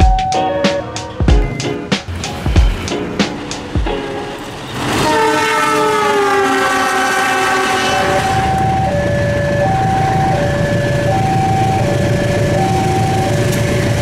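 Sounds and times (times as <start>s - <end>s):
train rumbling: 0.0s - 14.0s
locomotive horn: 4.0s - 10.8s.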